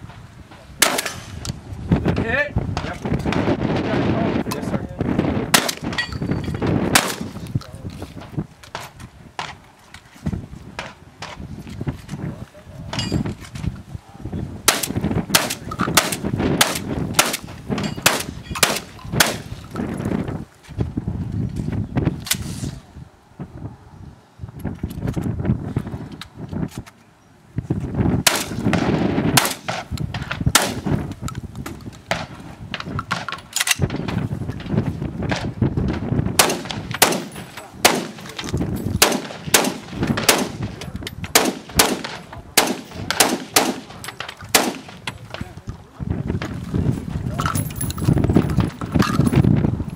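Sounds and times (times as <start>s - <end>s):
shotgun shots: 0.8s - 1.4s, 5.5s - 6.0s, 6.9s - 7.4s, 14.7s - 19.5s, 28.2s - 31.0s, 36.4s - 45.2s.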